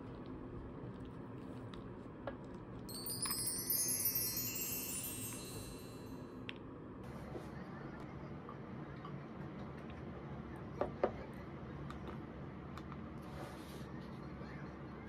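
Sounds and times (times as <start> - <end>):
wind chimes tinkling: 2.9 - 6.4.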